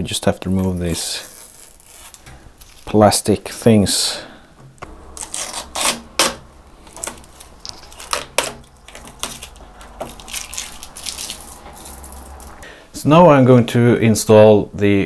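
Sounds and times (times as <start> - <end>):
plastic film peeling: 0.2 - 3.4, 4.6 - 12.7.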